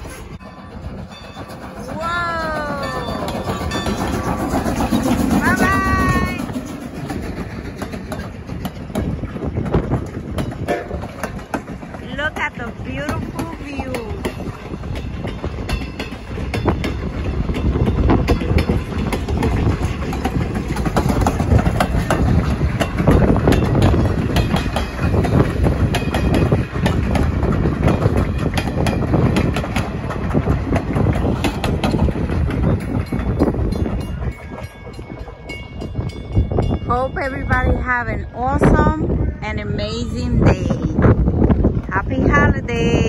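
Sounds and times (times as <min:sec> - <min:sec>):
train coaches rumbling past: 0:00.0 - 0:43.0
wheel clicks over rail joints: 0:06.4 - 0:35.0.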